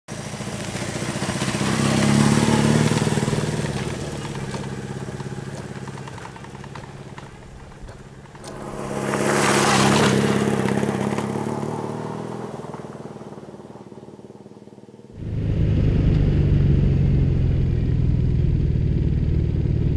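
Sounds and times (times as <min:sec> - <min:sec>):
motorcycle passing on gravel: 0:00.1 - 0:19.9.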